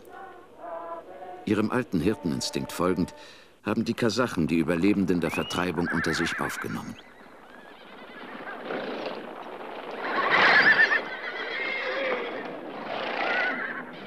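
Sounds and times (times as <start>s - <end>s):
herd noise: 4.8s - 14.0s
horses neighing: 5.3s - 14.0s.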